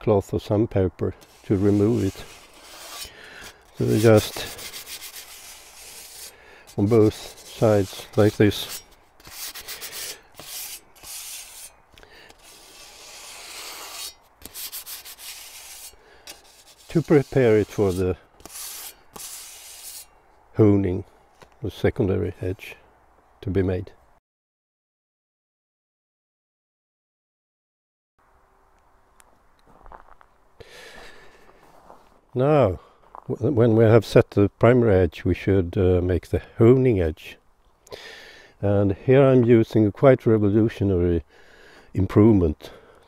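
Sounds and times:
wad rubbing on steel blade: 1.2s - 20.2s
faint rustle and handling noise: 29.1s - 33.4s.

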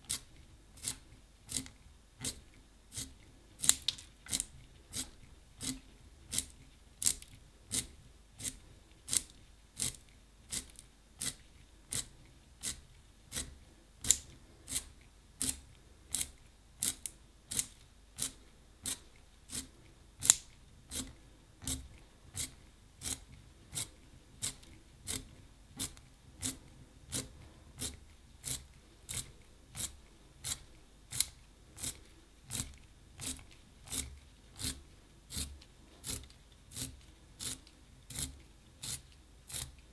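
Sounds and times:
pencil sharpener scraping: 22.4s - 39.8s.

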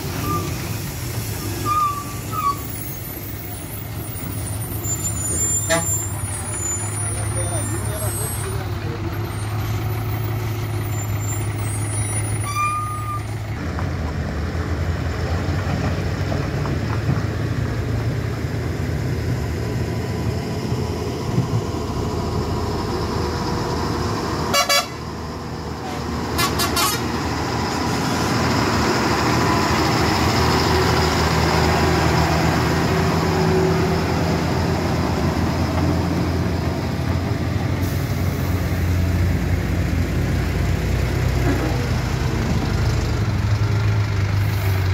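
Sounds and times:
diesel truck engines labouring: 0.0s - 44.9s
vehicle horn: 24.5s - 25.0s, 26.4s - 27.0s.

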